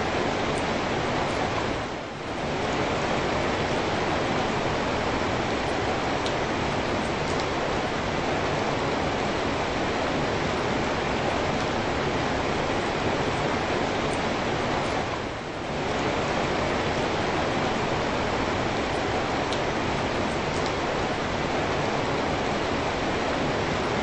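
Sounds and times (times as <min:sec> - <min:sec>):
steady rain: 0:00.0 - 0:24.0.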